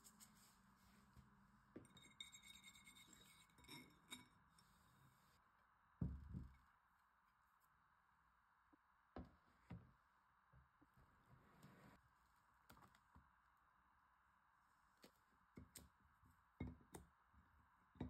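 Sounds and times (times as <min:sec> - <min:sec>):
wire whisk clinking on a bowl: 0:01.8 - 0:04.4.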